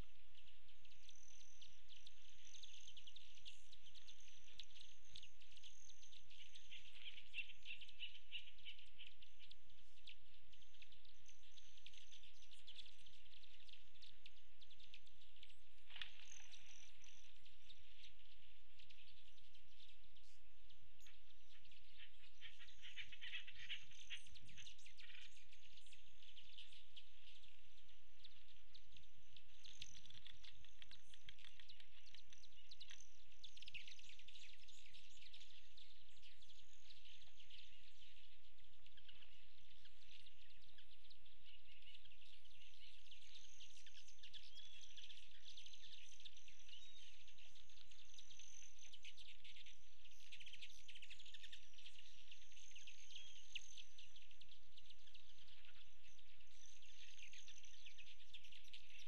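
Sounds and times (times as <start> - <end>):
small birds chirping and twittering: 0.0 - 59.0.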